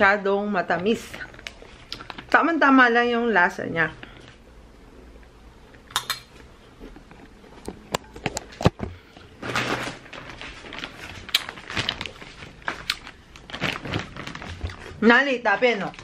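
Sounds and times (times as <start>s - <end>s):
rustling: 9.2s - 15.1s.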